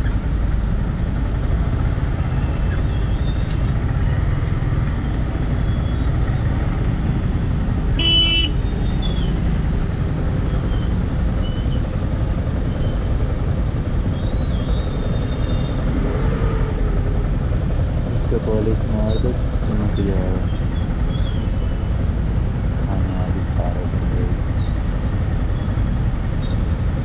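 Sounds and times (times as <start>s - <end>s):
rumble of vehicle engines: 0.0s - 27.0s
vehicle horn honking: 8.0s - 8.6s.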